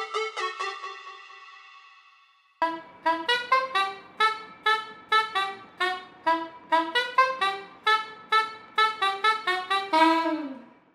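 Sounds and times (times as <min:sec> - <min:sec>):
saxophone tune: 0:02.6 - 0:10.9.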